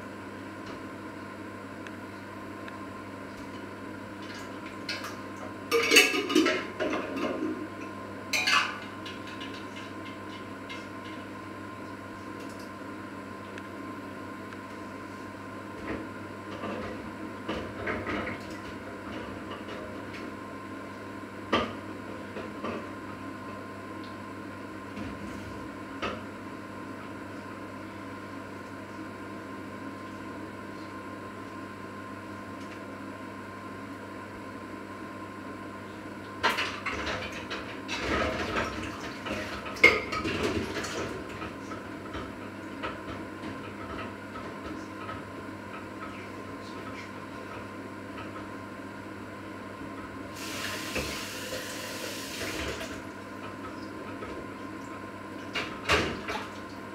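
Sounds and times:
steady hum: 0.0 - 36.8
dishes clattering in sink: 5.7 - 7.6, 8.3 - 11.2, 36.4 - 45.2.

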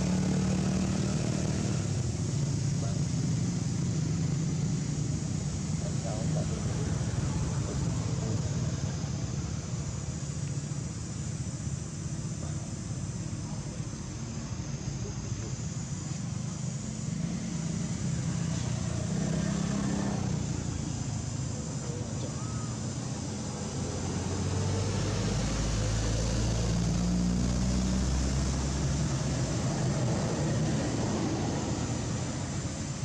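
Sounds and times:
motor engine humming: 0.0 - 33.0.

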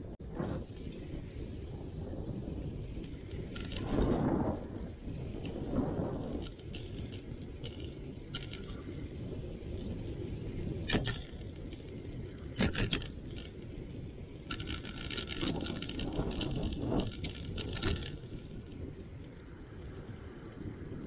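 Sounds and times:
bicycle tyres on asphalt: 0.0 - 21.0
wind on microphone: 0.0 - 21.0
rapid bicycle ticking: 0.6 - 21.0
bike knocking over bumps: 12.5 - 13.7, 14.5 - 18.6.

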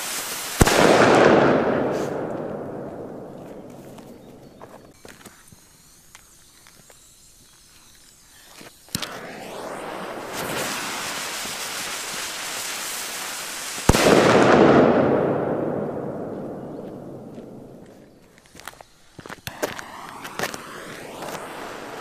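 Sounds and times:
firecracker bang: 0.0 - 4.2, 9.0 - 17.9
fuse hissing and sputtering: 3.9 - 13.9
rumble after explosion: 13.9 - 17.9.

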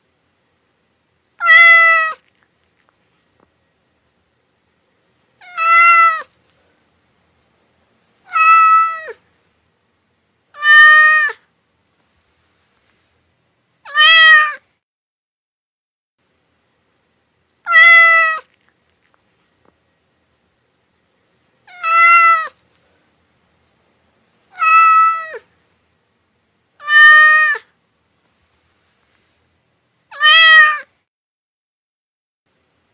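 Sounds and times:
cat meowing: 1.4 - 2.3, 5.4 - 6.4, 8.3 - 9.2, 10.6 - 11.4, 13.8 - 14.6, 17.7 - 18.6, 21.7 - 22.6, 24.5 - 25.5, 26.8 - 27.7, 30.1 - 30.9.

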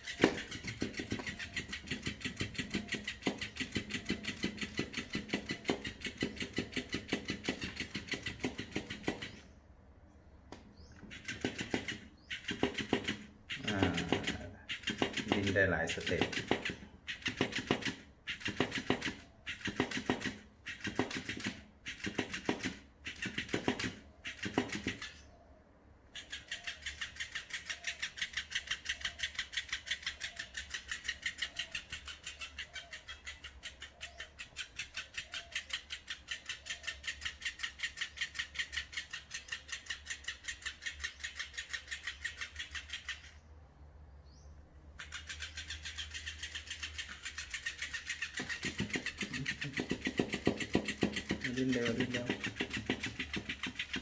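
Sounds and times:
toy fish thumping on wooden table: 0.0 - 9.3, 10.5 - 25.1, 46.9 - 54.0.

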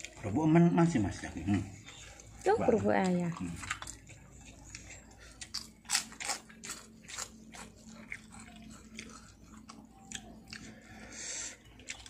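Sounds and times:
crunching fried crackers: 1.1 - 12.0.

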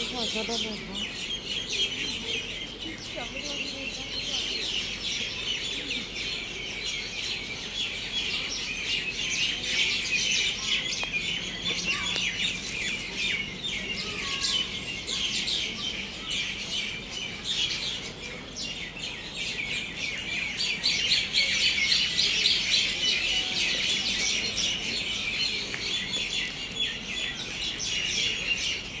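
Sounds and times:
many birds chirping: 0.0 - 29.0.

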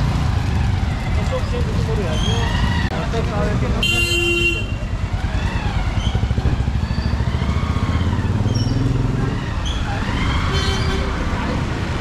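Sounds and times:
motorcycles and cars passing: 0.0 - 12.0
car horn honk: 3.8 - 4.8.

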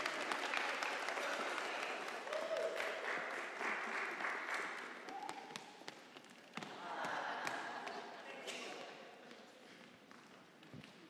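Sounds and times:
congregation applauding: 0.0 - 5.2.

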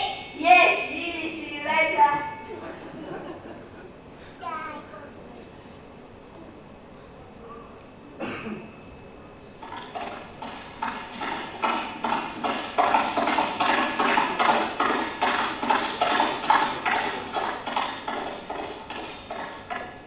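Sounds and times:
horse hooves clip-clopping: 9.7 - 20.0.

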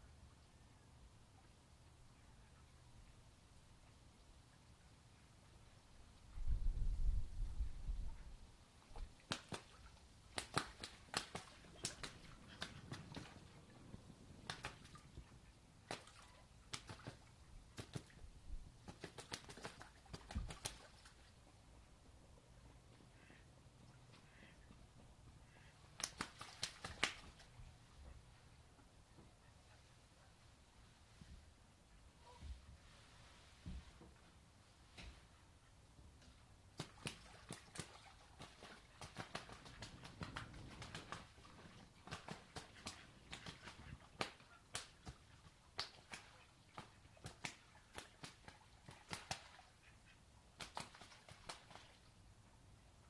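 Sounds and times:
water splashing and slapping: 9.0 - 21.3, 26.0 - 27.6, 36.7 - 49.8.

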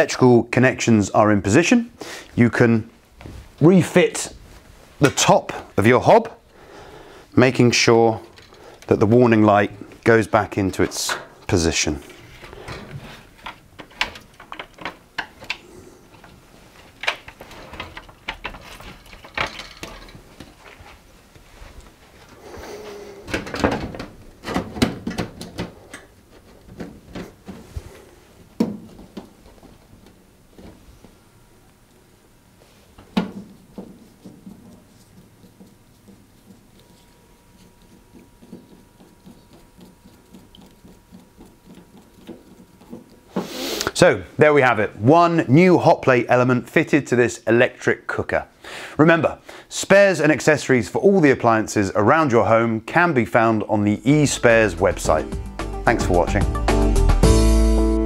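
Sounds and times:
screwdriver scratchy ticks: 34.2 - 44.0.

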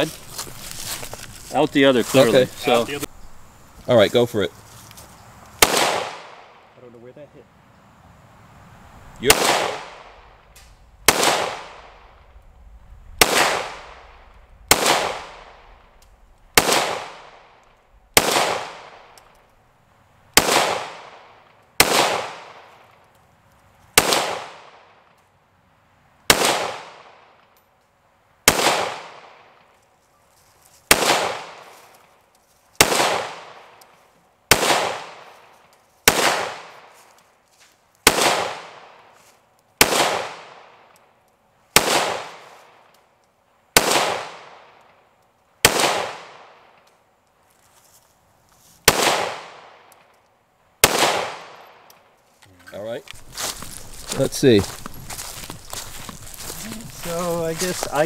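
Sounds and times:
pistol shots with echo: 5.6 - 6.6, 9.2 - 10.2, 11.0 - 12.1, 13.2 - 15.7, 16.6 - 17.5, 18.2 - 19.1, 20.4 - 22.7, 24.0 - 25.0, 26.3 - 27.3, 28.5 - 29.4, 30.9 - 31.6, 32.8 - 33.7, 34.5 - 35.3, 36.1 - 36.8, 38.0 - 39.0, 39.8 - 40.8, 41.8 - 42.5, 43.8 - 44.8, 45.6 - 46.7, 48.9 - 49.9, 50.8 - 51.9.

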